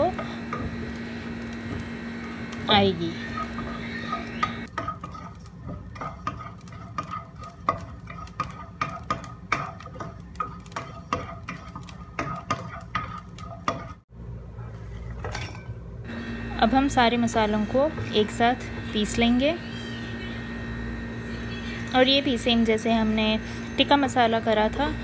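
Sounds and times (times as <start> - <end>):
low hum: 0.0 - 4.7
spatula scraping seeds in pan: 0.0 - 14.1.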